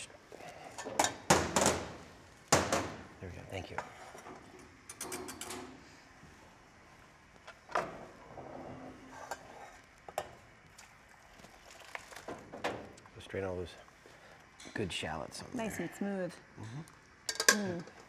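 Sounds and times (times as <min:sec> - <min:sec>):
steel cookware clinking and knocking: 0:17.3 - 0:17.7.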